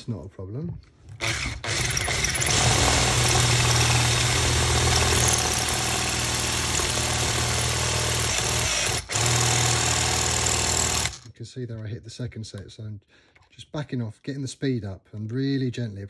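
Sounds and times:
power drill boring into metal: 0:01.2 - 0:11.3.

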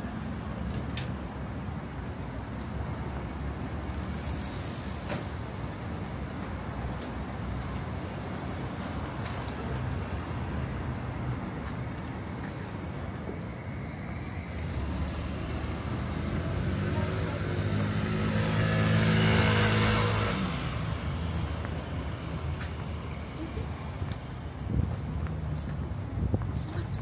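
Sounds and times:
low rumble of road traffic: 0:00.0 - 0:27.0.

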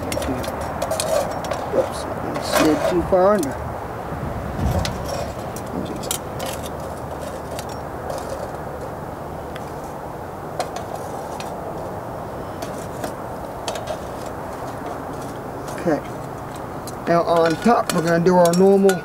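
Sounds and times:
charcoal clicks and clinks: 0:00.0 - 0:03.6, 0:12.6 - 0:19.0
wind rushing: 0:02.9 - 0:06.2.

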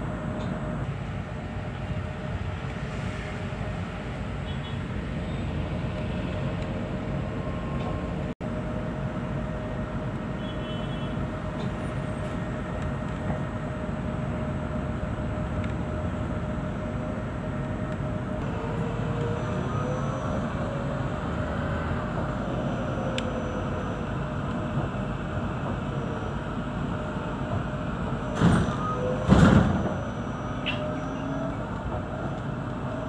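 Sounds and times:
road and tyre rumble: 0:00.0 - 0:33.0.

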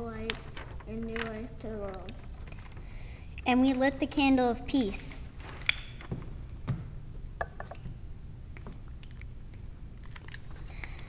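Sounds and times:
steady low hum: 0:00.0 - 0:11.0
faint clicks and handling: 0:00.2 - 0:03.8.

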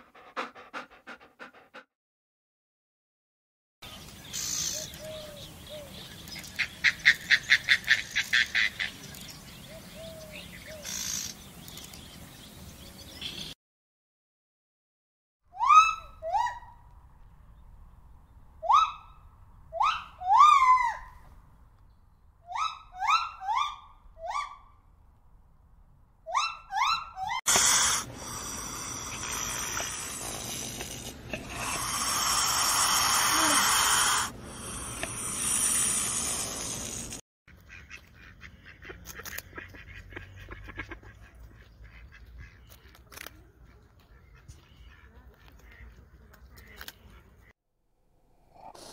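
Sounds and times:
bird calls: 0:03.9 - 0:13.6
steady hiss: 0:27.5 - 0:37.2.

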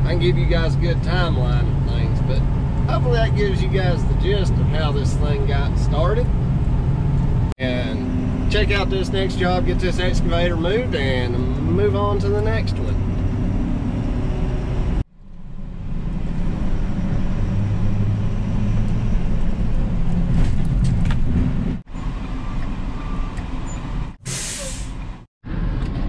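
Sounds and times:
truck engine and road noise: 0:00.0 - 0:26.0
short burst of hiss: 0:24.3 - 0:25.0.

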